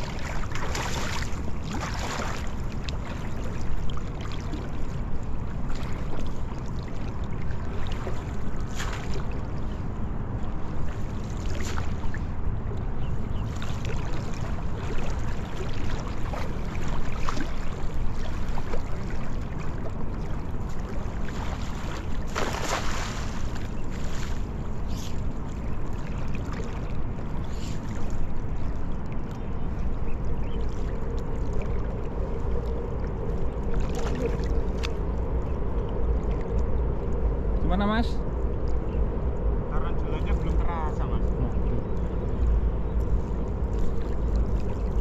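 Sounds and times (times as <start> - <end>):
small water sounds: 0.0 - 45.0
steady low rumble: 0.0 - 45.0
cast net splashing on water: 21.2 - 24.2.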